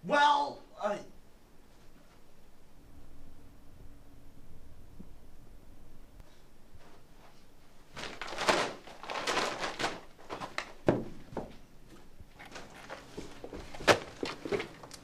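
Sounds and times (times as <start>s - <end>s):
paper bag rustling: 7.8s - 15.0s.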